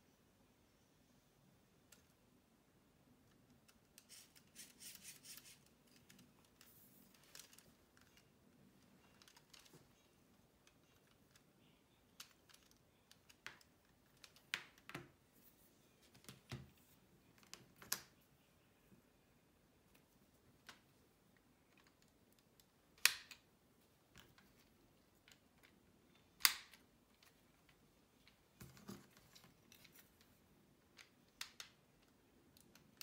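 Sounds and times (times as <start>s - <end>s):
plastic parts clicking: 3.2s - 9.8s, 12.1s - 15.1s
plastic parts rustling: 3.6s - 11.4s.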